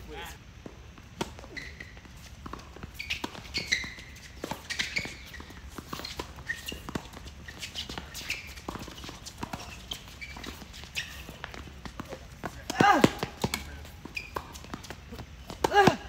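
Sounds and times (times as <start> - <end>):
footsteps on hard court: 0.6 - 16.0
tennis ball bouncing: 0.6 - 16.0
tennis ball hit by racquets: 1.0 - 16.0
shoe squeaks: 1.2 - 16.0.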